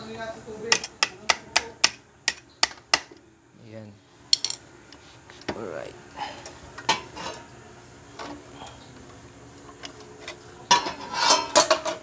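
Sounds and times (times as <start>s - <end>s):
metal parts clicking and clinking: 4.3s - 4.6s.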